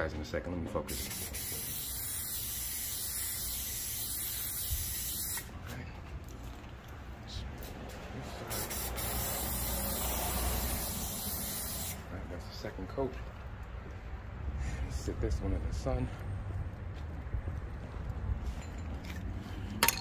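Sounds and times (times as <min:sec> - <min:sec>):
spray can hissing: 0:00.9 - 0:05.6, 0:08.4 - 0:12.0.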